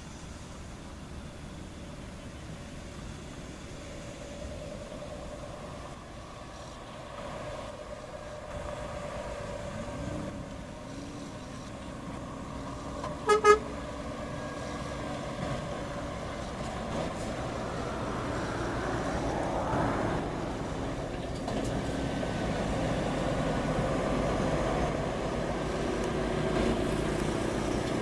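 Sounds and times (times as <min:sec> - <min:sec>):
truck diesel engine: 0:00.0 - 0:28.0
tyre noise on dirt road: 0:00.0 - 0:28.0
truck horn toots: 0:13.2 - 0:13.8.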